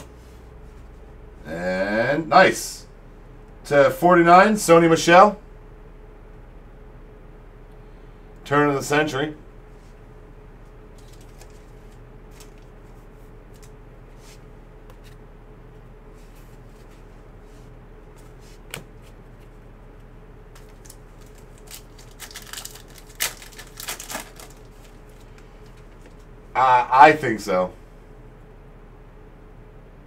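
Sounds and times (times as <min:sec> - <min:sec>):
faint steady hum: 0:00.0 - 0:30.0
foil pack crinkling: 0:10.9 - 0:13.8, 0:20.5 - 0:26.3.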